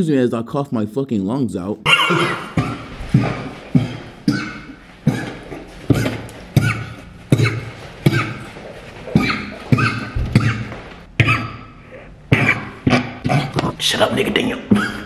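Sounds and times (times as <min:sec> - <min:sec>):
man coughing hard: 0:01.9 - 0:13.3.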